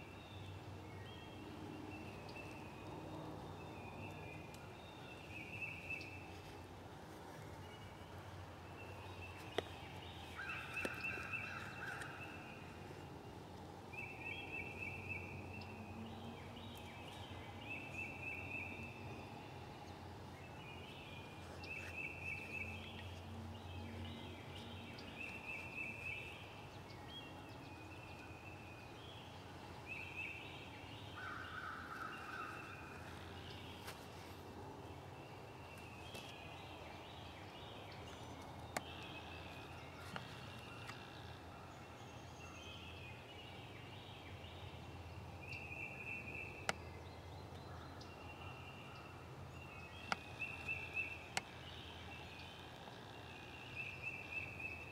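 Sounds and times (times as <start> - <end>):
faint woodland background: 0.0 - 54.9
bird singing trilled song: 13.9 - 33.9, 35.2 - 54.9.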